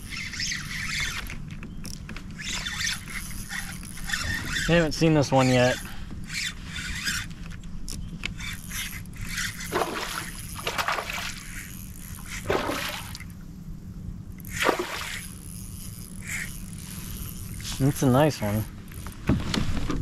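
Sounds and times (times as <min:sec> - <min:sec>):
water sloshing against kayak: 0:09.4 - 0:13.4
loud fish splashes: 0:09.7 - 0:11.5, 0:12.4 - 0:13.3, 0:14.5 - 0:15.3.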